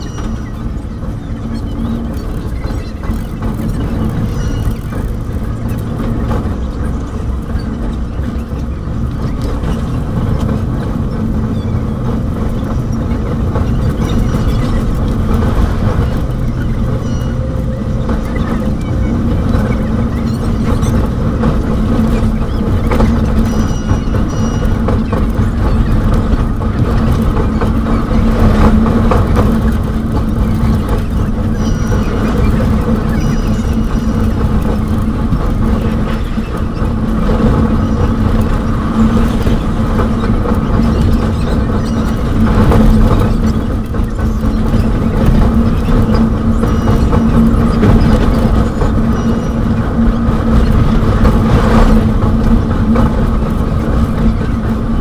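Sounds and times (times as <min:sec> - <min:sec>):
constant hum: 0:00.0 - 0:55.0
train rumble on rails: 0:00.0 - 0:55.0.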